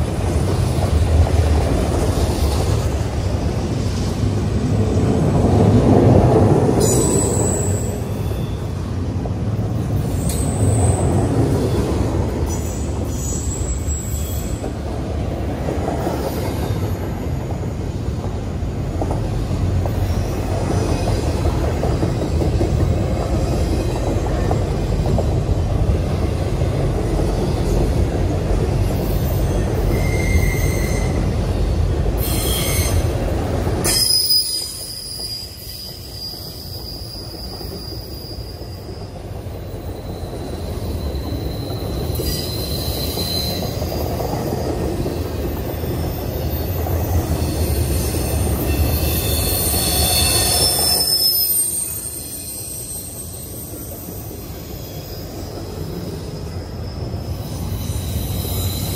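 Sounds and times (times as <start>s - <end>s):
train wheels rumbling on rail: 0.0s - 58.9s
wheel squeal: 6.8s - 8.7s, 12.5s - 14.7s, 28.8s - 31.4s, 32.2s - 33.2s, 33.8s - 44.5s, 45.1s - 58.9s.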